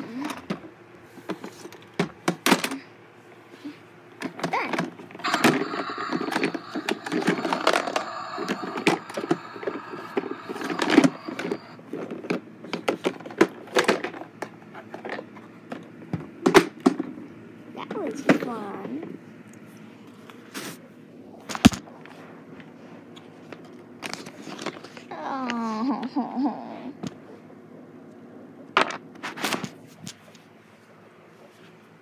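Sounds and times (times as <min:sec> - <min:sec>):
steady held tones: 0:05.2 - 0:11.8.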